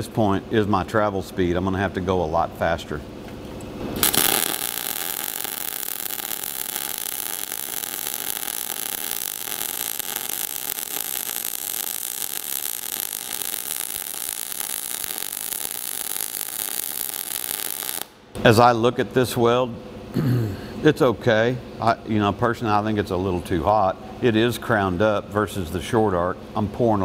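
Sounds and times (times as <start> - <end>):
welding arc crackling hiss: 3.8 - 18.2.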